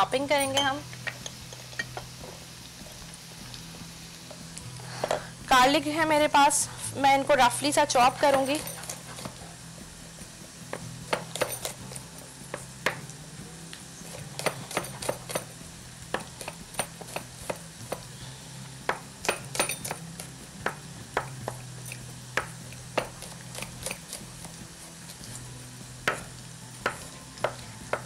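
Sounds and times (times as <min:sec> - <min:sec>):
knife chopping on wooden board: 0:22.4 - 0:23.7, 0:26.0 - 0:28.0.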